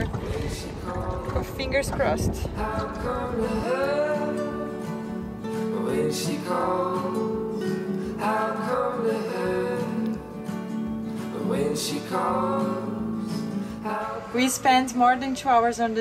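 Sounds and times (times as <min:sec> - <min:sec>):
strummed acoustic guitar: 0:00.0 - 0:15.2
person singing: 0:02.4 - 0:10.4, 0:11.2 - 0:14.6.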